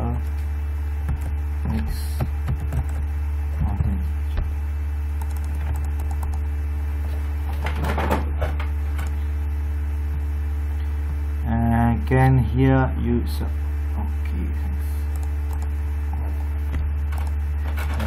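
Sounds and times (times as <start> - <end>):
low electrical hum: 0.0 - 18.0
keyboard keystrokes: 5.2 - 6.4.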